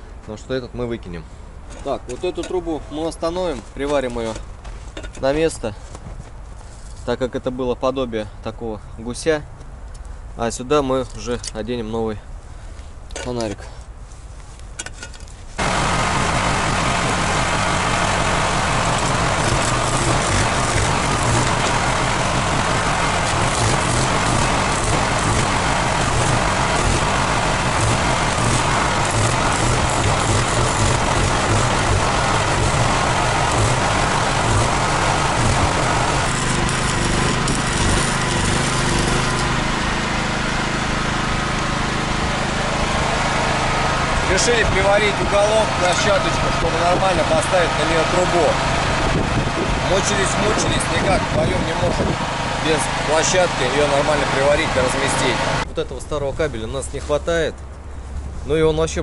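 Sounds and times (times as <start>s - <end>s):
engine-like rumble with hiss: 15.3s - 59.0s
loud rushing noise: 15.6s - 39.4s.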